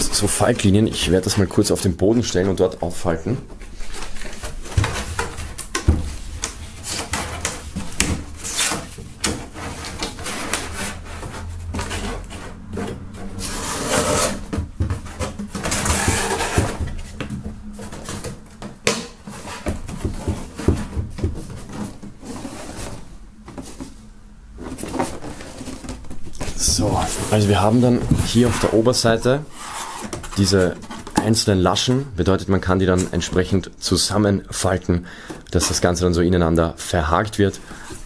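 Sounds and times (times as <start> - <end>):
cardboard rustling and creasing: 0.0 - 33.6
cardboard flaps knocking: 3.4 - 13.2, 14.4 - 24.0.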